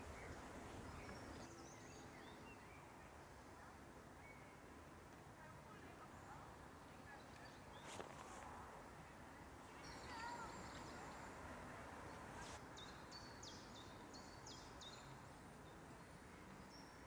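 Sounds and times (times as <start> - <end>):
faint songbird calls: 9.7 - 11.4.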